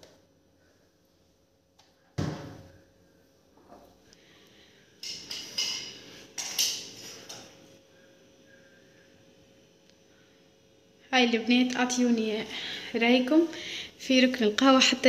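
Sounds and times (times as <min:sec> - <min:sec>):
kitchen items clinking and clattering: 0:05.0 - 0:07.5.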